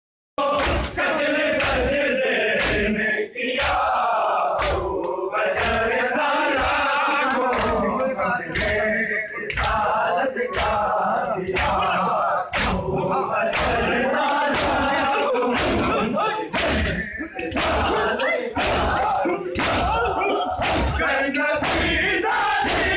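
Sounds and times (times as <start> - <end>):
men chanting in unison: 0.4 - 22.9
hand slaps on chests: 0.6 - 1.9, 2.6 - 2.9, 3.5 - 3.9, 4.6 - 5.9, 6.5 - 7.8, 8.5 - 9.8, 10.5 - 10.9, 11.5 - 11.9, 12.5 - 12.9, 13.5 - 13.9, 14.5 - 14.9, 15.5 - 20.0, 20.6 - 22.0, 22.6 - 22.9.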